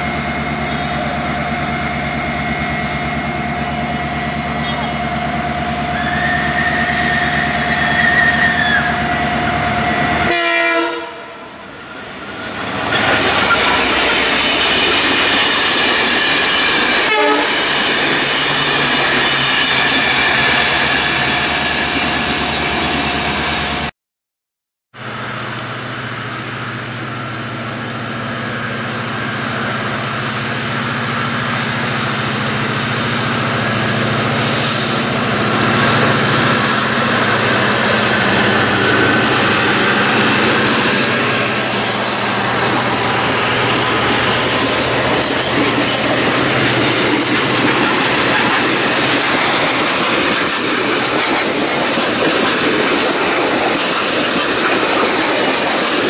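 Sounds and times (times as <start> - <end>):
train wheel squeal: 0.0 - 10.3, 11.8 - 23.8, 33.6 - 56.0
diesel locomotive engine hum: 0.0 - 23.9, 25.0 - 56.0
boxcars rumbling and clattering: 35.2 - 56.0.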